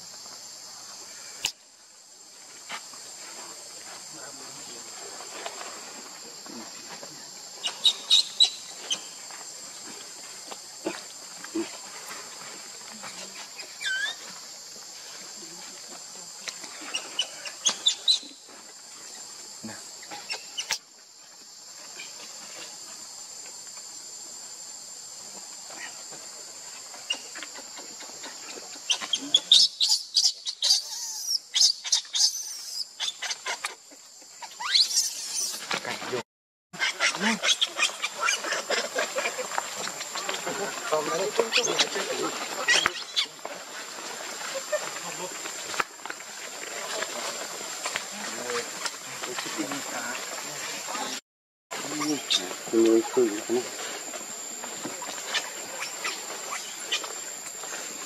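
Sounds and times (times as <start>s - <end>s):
insect chorus drone: 0.0s - 36.2s, 36.8s - 58.0s
crackling dry leaves: 38.2s - 51.2s.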